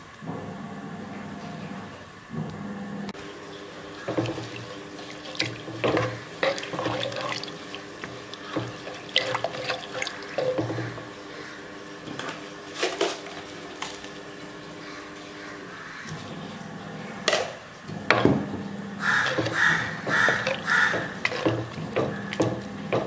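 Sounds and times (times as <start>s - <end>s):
liquid sloshing in a pot: 3.9s - 11.5s, 19.0s - 23.0s
wooden spoon knocking pot: 19.0s - 23.0s.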